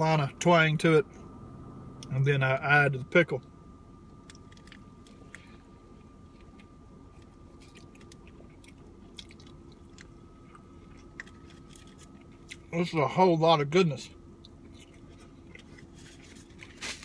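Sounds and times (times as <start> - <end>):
person chewing food: 4.2 - 12.7, 14.4 - 16.7.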